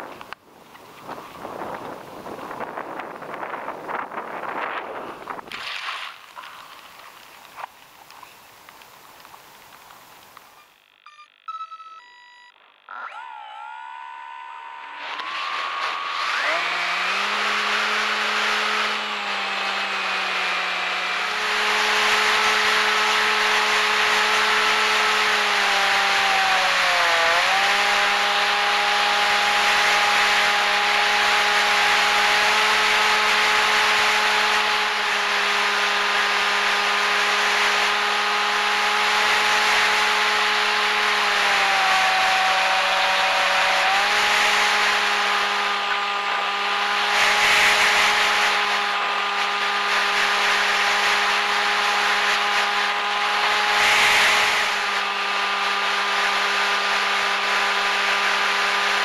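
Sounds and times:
wind noise: 0.0s - 7.0s
propeller motor buzzing: 12.8s - 59.0s.

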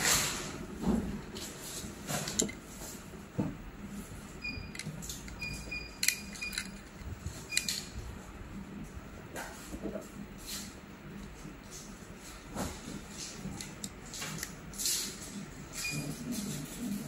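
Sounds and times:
plastic parts clicking: 6.0s - 7.8s.

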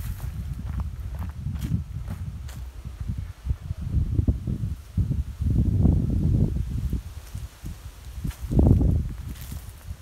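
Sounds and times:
wind buffeting microphone: 0.0s - 10.0s
leaves rustling: 4.4s - 10.0s.

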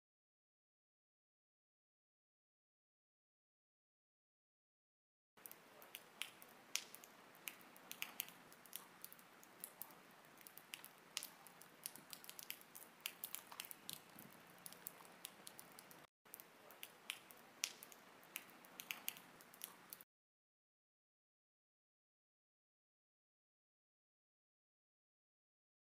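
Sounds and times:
low hiss: 5.4s - 20.0s
water dripping: 5.4s - 20.0s.

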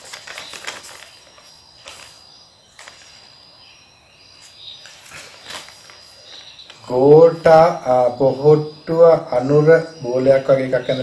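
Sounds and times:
paper rustling: 0.0s - 3.4s, 4.4s - 7.0s
crickets chirring: 0.0s - 11.0s.

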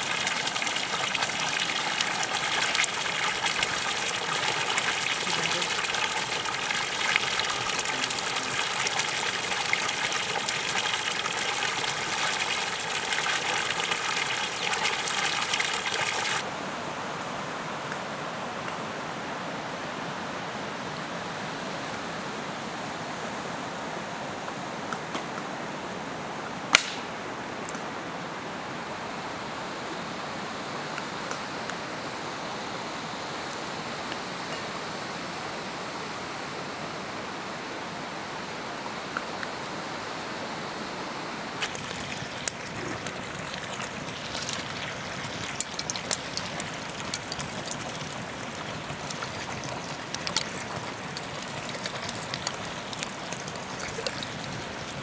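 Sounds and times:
running water: 0.0s - 16.5s, 41.5s - 55.0s
fire crackling and popping: 41.6s - 55.0s.

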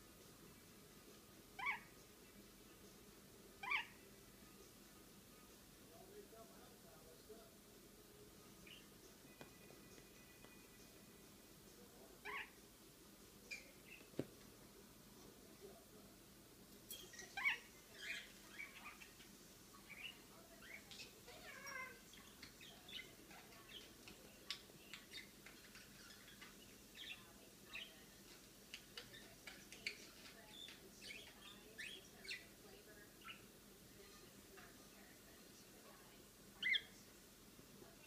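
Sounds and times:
parakeet warbling calls: 1.6s - 1.9s, 3.6s - 4.0s, 12.2s - 12.6s, 36.6s - 36.9s
parakeet chirping and chattering: 1.6s - 2.1s, 3.6s - 4.1s, 8.4s - 9.3s, 12.2s - 12.6s, 13.5s - 14.2s, 16.9s - 34.2s, 36.6s - 37.0s.

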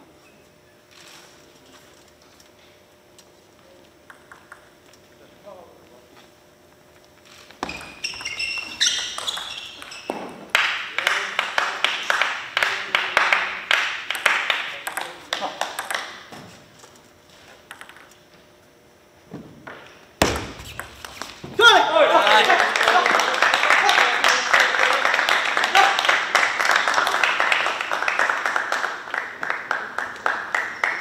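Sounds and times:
table tennis ball bouncing: 4.0s - 4.8s, 7.6s - 10.6s, 13.8s - 16.4s, 17.7s - 18.1s, 19.6s - 21.6s
short high squeaks: 7.3s - 10.4s.

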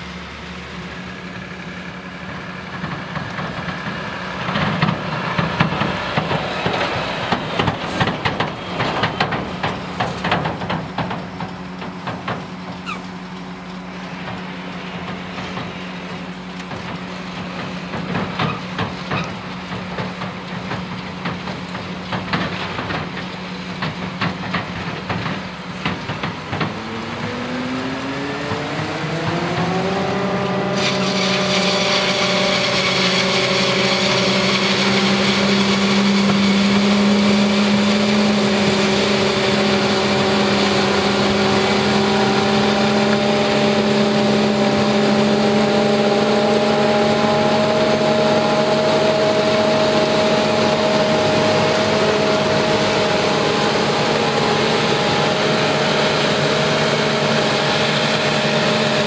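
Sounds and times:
diesel engines running: 0.0s - 59.0s
engine revving up: 26.5s - 59.0s
hiss of chopped corn blowing: 30.3s - 59.0s.

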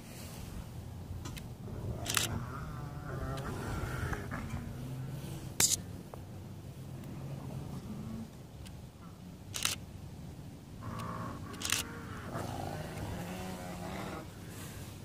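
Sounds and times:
sharp clicks: 2.1s - 2.3s, 9.5s - 9.8s, 10.9s - 11.9s
wolf wheezy vocalizing: 10.8s - 14.4s.

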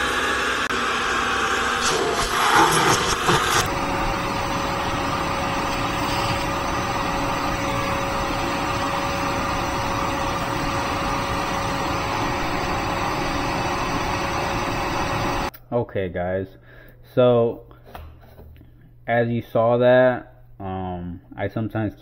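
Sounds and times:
vacuum whining: 0.0s - 15.5s.

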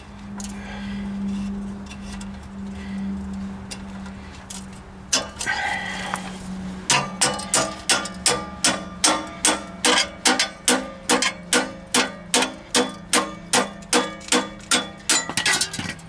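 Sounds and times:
hammer striking chisel on metal: 6.9s - 15.7s.

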